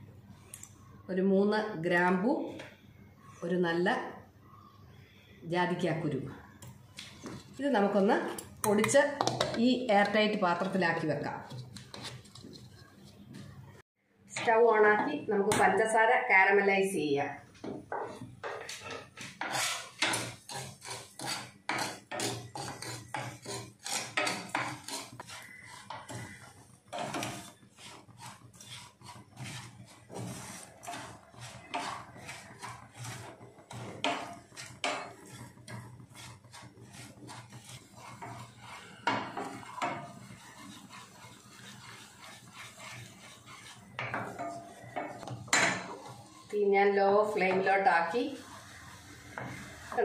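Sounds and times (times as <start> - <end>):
wooden spatula scraping sugar in pan: 7.2 - 13.6, 17.9 - 50.0.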